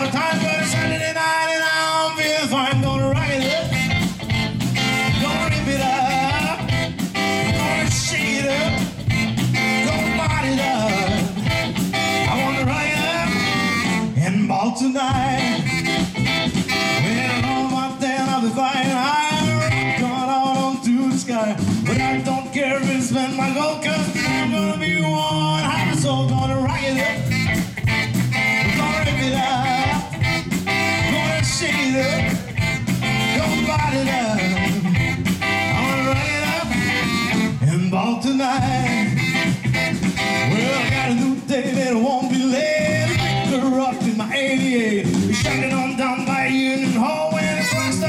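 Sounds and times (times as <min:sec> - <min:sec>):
live rock and roll band: 0:00.0 - 0:48.0
saxophone: 0:03.2 - 0:14.4, 0:15.2 - 0:18.1, 0:19.1 - 0:20.4, 0:21.6 - 0:41.5, 0:42.6 - 0:43.9, 0:45.2 - 0:48.0.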